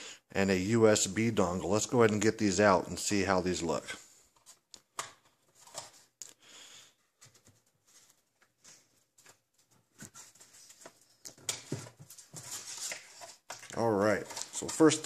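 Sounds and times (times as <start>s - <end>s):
hands rustling and scraping packaging: 4.3s - 6.2s, 7.1s - 15.0s.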